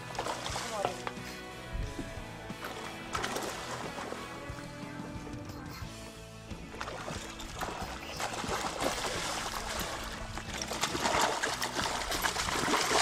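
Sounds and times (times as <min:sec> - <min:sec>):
fish splashing in water: 0:00.0 - 0:01.0, 0:02.6 - 0:04.4, 0:06.7 - 0:13.0
background music: 0:00.0 - 0:13.0.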